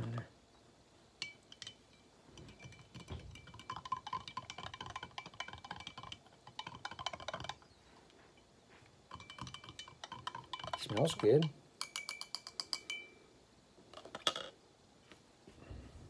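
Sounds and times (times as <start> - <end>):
spoon clinking in glass mug: 1.2 - 7.5, 9.1 - 13.2.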